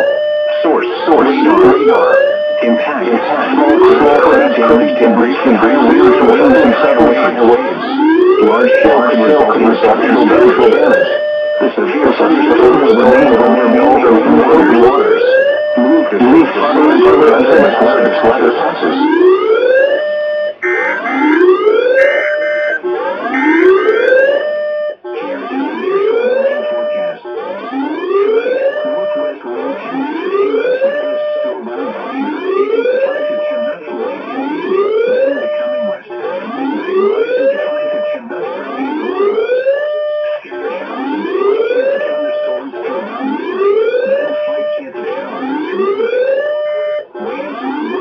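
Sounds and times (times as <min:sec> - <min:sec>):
rising siren-like whoop: 0:20.6 - 0:24.5.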